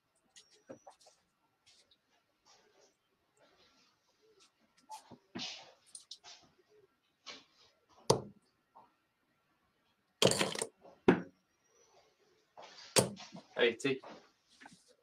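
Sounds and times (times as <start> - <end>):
darts thudding into dartboard: 8.1 - 8.3, 12.9 - 13.4.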